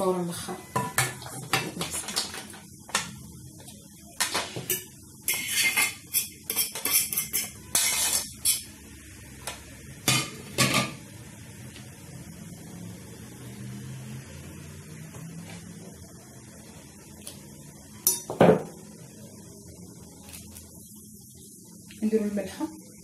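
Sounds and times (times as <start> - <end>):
metal utensils clanking: 4.2 - 8.7.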